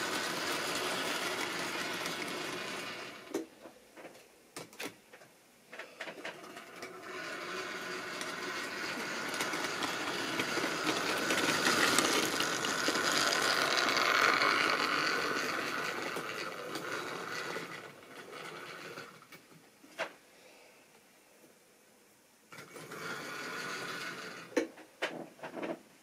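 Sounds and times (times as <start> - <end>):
model train whirring and clattering: 0.0 - 3.5, 5.7 - 19.6, 22.5 - 24.7.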